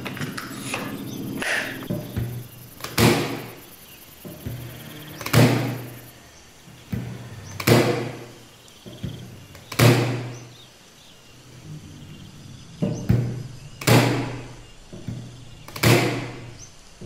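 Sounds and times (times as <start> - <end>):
staple gun firing bang: 15.7 - 16.4.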